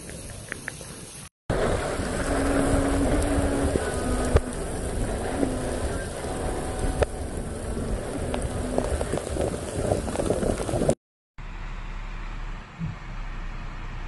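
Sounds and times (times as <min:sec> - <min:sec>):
dull steady rushing noise: 0:00.6 - 0:14.0
heavy rain on rocky ground: 0:01.5 - 0:11.0.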